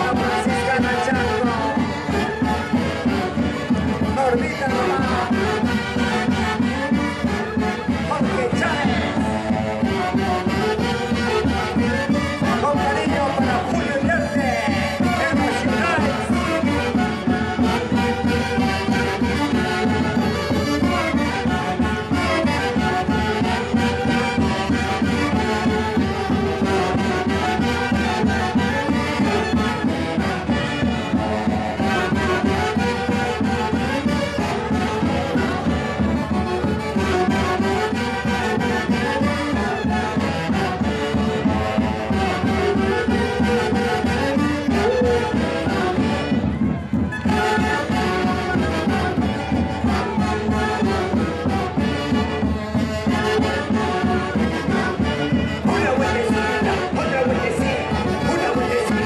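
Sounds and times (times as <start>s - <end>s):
saxophone melody: 15.2s - 57.2s.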